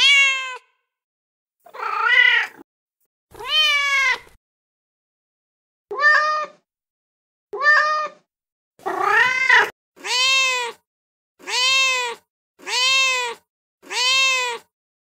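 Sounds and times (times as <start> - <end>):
cat meowing: 0.0 - 0.8, 1.7 - 2.6, 3.4 - 4.4, 5.9 - 6.6, 7.6 - 10.8, 11.4 - 14.7.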